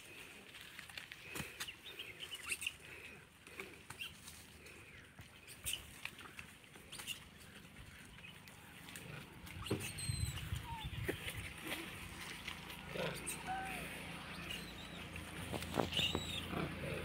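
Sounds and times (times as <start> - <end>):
rustling through grass and leaves: 0.0 - 17.0.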